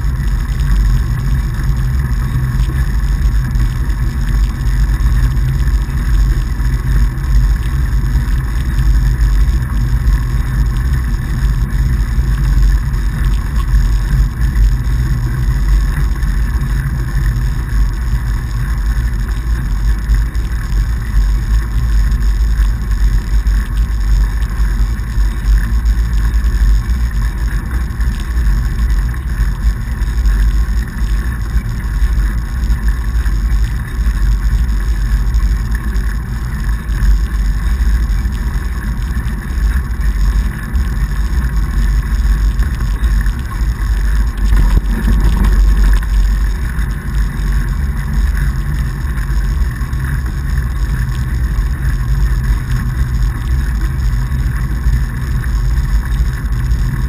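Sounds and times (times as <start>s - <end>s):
wide tyres rolling on snow: 0.0s - 57.0s.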